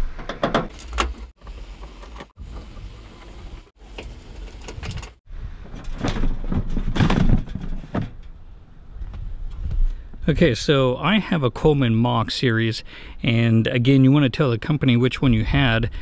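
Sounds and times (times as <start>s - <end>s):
wind rumbling on microphone: 2.4s - 10.4s
plastic shroud rattling and scraping: 4.3s - 8.2s.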